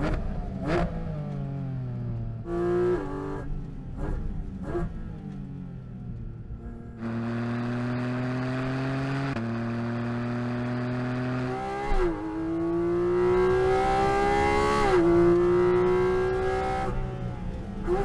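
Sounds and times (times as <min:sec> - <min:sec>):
sports car engine accelerating: 0:00.0 - 0:18.0.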